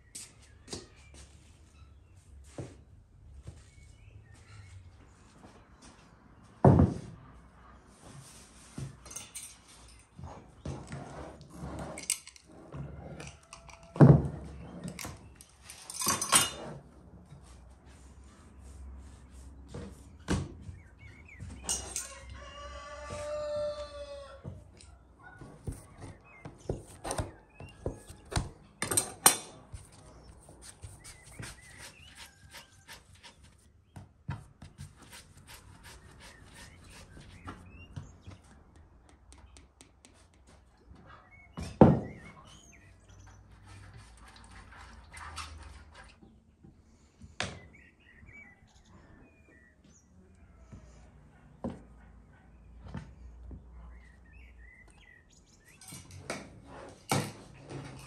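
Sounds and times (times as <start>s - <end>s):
small birds chirping: 29.9s - 34.1s, 34.7s - 39.9s, 47.0s - 51.1s, 52.2s - 56.0s.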